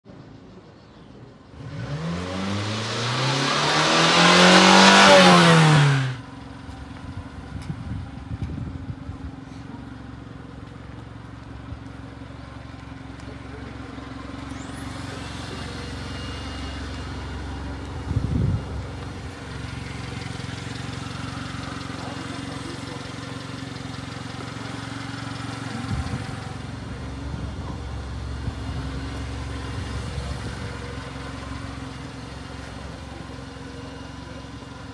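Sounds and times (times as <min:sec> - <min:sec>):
small truck engine revving: 0:01.5 - 0:06.3, 0:13.8 - 0:34.9
engine idling: 0:04.5 - 0:34.9.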